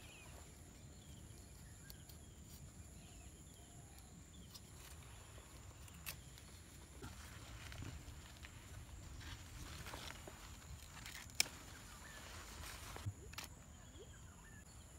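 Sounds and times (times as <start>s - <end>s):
knife snapping through stalk: 5.8s - 6.5s, 11.0s - 11.6s
faint chirps: 11.6s - 14.9s.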